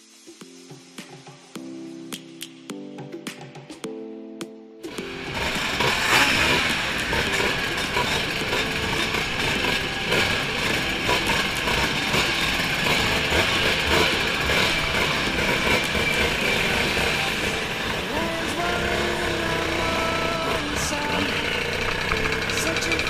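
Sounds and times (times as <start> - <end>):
group of scooter engines running: 4.9 - 23.0.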